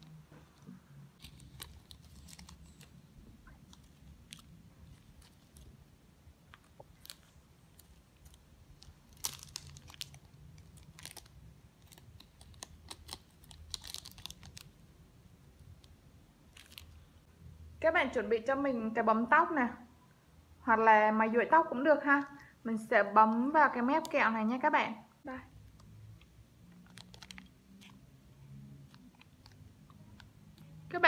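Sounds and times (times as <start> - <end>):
plastic bags crinkling: 1.2 - 5.8, 6.5 - 14.8, 16.5 - 17.1, 26.7 - 28.0.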